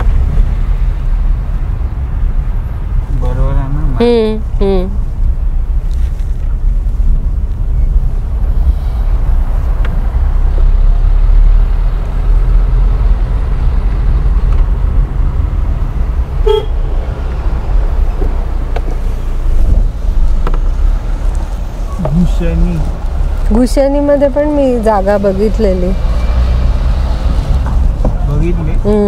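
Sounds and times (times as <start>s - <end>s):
car engine and tyres rumbling: 0.0s - 29.0s
car horn toot: 16.4s - 16.9s.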